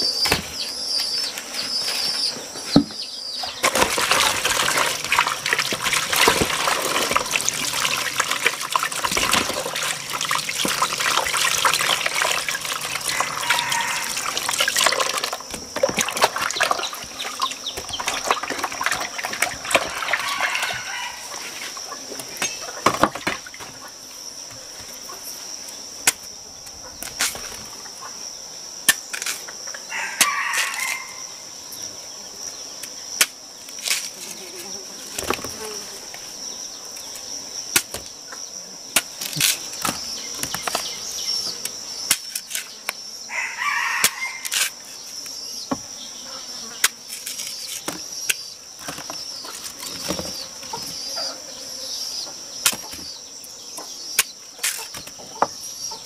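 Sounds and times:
high insect drone: 0:00.0 - 0:56.0
rooster crowing: 0:13.0 - 0:14.6, 0:19.7 - 0:21.4, 0:29.9 - 0:31.3, 0:43.3 - 0:44.5.

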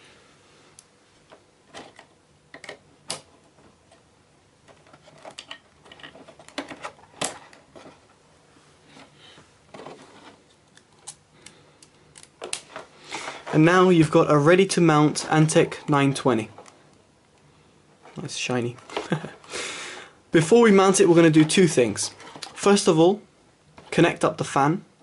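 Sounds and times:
plastic clicks and rattles: 0:01.7 - 0:04.0, 0:04.7 - 0:08.0.

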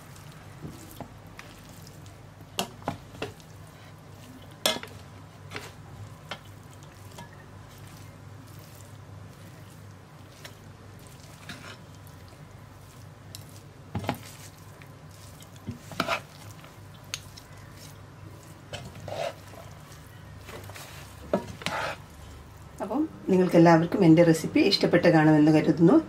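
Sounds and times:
low steady hum: 0:00.0 - 0:26.0
spoon stirring rice in metal pot: 0:00.2 - 0:22.2
spoon knocking and scraping pot: 0:04.6 - 0:05.7, 0:20.5 - 0:22.0.

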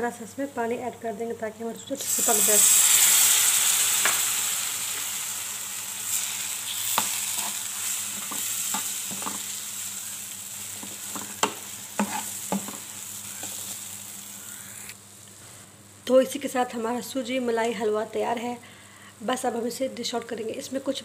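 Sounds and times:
water sizzling in a hot pan: 0:02.0 - 0:15.0
spoon scraping a pan: 0:06.1 - 0:09.5, 0:10.8 - 0:13.8.

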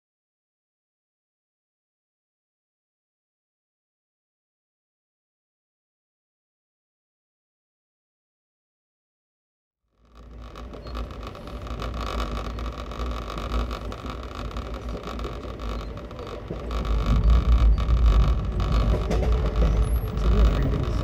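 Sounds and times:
low buffeting: 0:10.2 - 0:21.0
train rumble and rail noise: 0:10.2 - 0:21.0.

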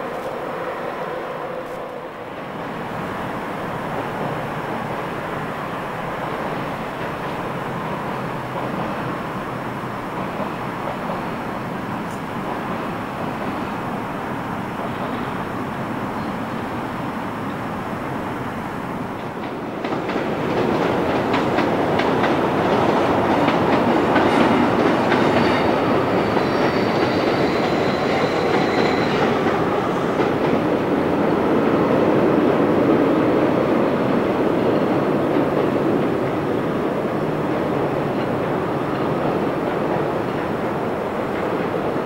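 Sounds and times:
train rumbling over bridge: 0:00.0 - 0:42.0
wheels clacking over rail joints: 0:19.1 - 0:31.2.

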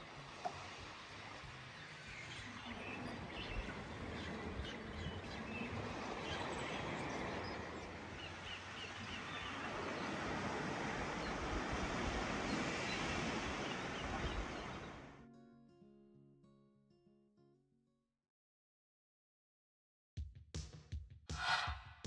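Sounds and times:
water noise: 0:00.0 - 0:15.2
wind: 0:00.0 - 0:15.2, 0:21.3 - 0:21.9
faint bird chirps: 0:00.4 - 0:10.5.

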